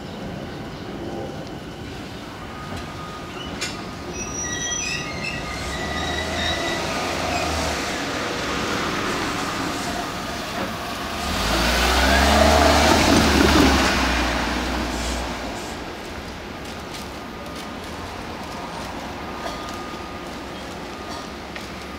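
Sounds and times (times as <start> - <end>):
train rumble and hum: 0.0 - 21.9
train wheels squealing: 2.5 - 8.2.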